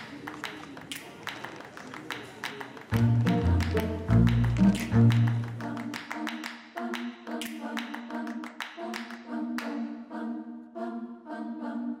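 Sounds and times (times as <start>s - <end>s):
short sharp repeating music notes: 2.9s - 10.2s.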